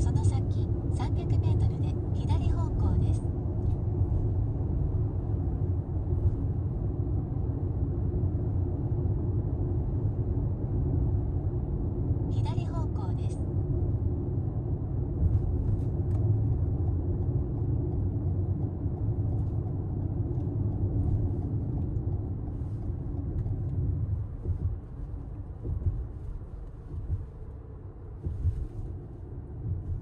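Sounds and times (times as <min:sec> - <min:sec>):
car cabin road rumble: 0:00.0 - 0:30.0
faint light ticks: 0:15.8 - 0:27.0.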